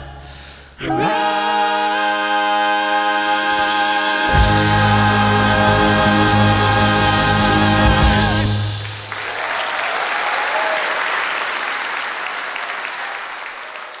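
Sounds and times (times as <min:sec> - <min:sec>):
band and strings holding chord: 0:04.2 - 0:09.2
audience applause: 0:07.8 - 0:14.0.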